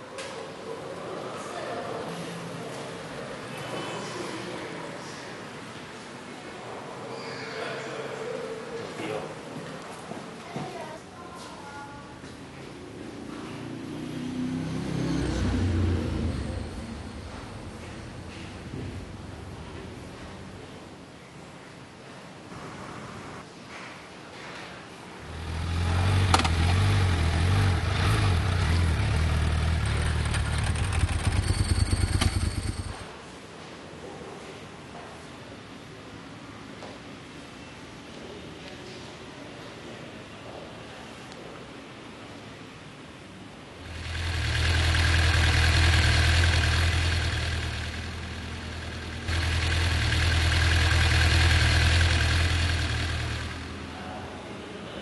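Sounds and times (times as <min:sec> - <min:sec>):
motorcycle engine running: 0:25.2 - 0:33.1, 0:43.8 - 0:54.0.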